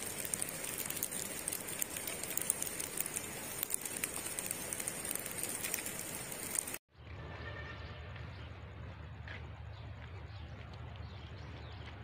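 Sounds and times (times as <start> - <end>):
light rain pattering: 0.0 - 6.8.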